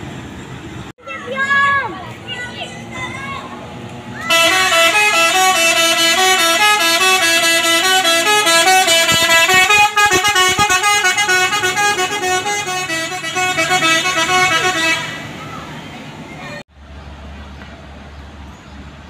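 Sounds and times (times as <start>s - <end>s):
bus horn playing a tune: 4.3s - 15.4s.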